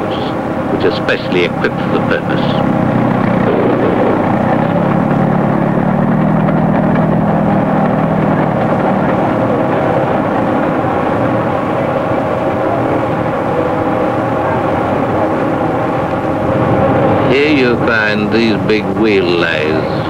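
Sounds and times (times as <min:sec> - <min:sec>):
heavy machinery humming: 0:00.0 - 0:20.0
deep hum: 0:02.3 - 0:09.6.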